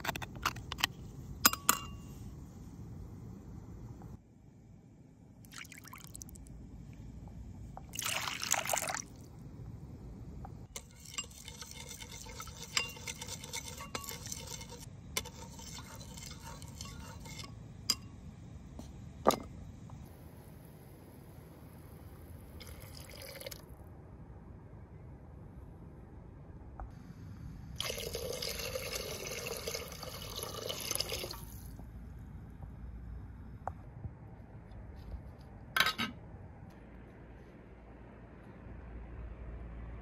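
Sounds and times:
metal spoon scraping and clinking bowl: 1.5s - 2.1s, 10.8s - 18.2s
water pouring into bowl: 5.5s - 6.4s, 8.0s - 9.2s, 22.6s - 23.6s, 27.8s - 31.6s.

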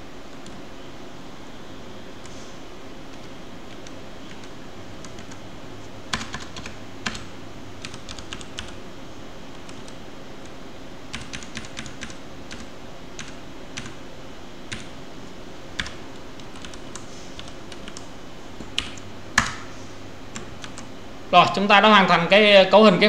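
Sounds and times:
computer keyboard typing: 3.1s - 5.4s, 6.1s - 8.8s, 9.5s - 14.0s, 14.7s - 15.0s, 15.8s - 19.6s, 20.3s - 20.9s.

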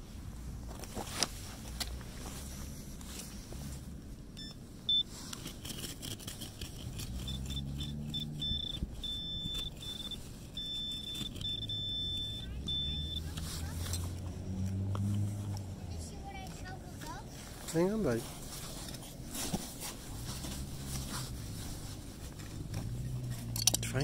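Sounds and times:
metal detector beeping: 4.4s - 5.1s, 7.2s - 13.4s.

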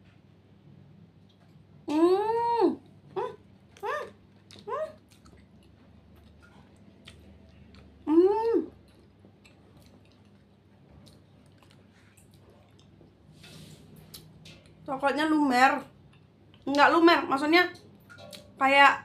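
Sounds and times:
chewing soft pastry: 2.8s - 15.0s, 15.8s - 16.9s.

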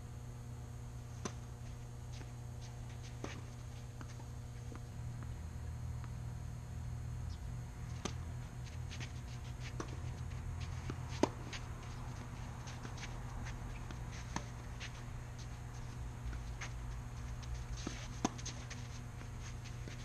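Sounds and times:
steady low hum: 0.0s - 20.0s
footsteps scuffing on court: 1.1s - 5.3s, 7.8s - 20.0s
racket hitting tennis ball: 8.9s - 15.5s, 17.6s - 18.8s.

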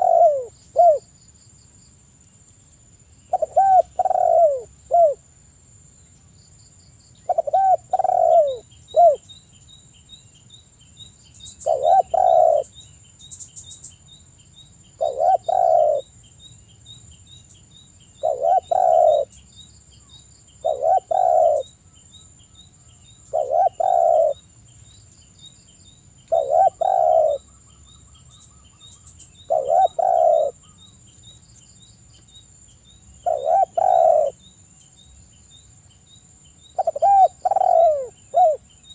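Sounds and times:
dove cooing: 0.0s - 1.1s, 3.3s - 5.2s, 7.3s - 9.2s, 11.6s - 12.7s, 15.0s - 16.1s, 18.2s - 19.4s, 20.6s - 21.7s, 23.3s - 24.4s, 26.3s - 27.5s, 29.4s - 30.8s, 33.2s - 34.4s, 36.8s - 38.6s.

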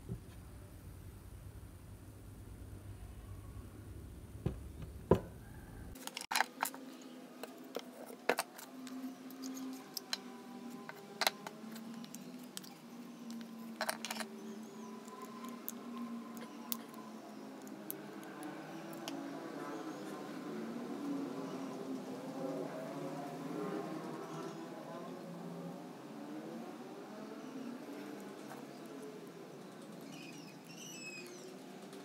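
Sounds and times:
faint steady hum: 0.0s - 6.0s.

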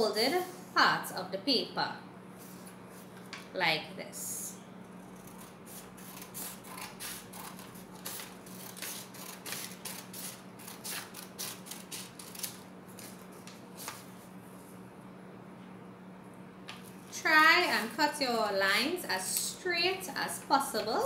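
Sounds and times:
scissors snipping paper: 5.2s - 13.2s.

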